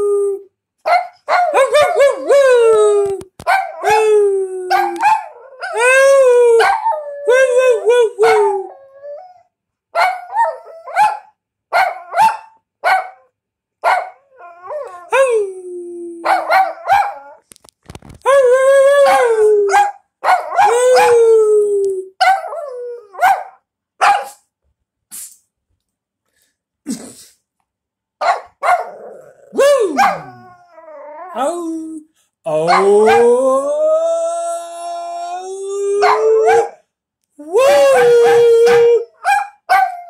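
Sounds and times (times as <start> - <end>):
dog howling: 1.4 - 9.4, 18.3 - 23.5, 28.7 - 36.8, 37.4 - 40.0
small dog yipping: 38.2 - 40.0.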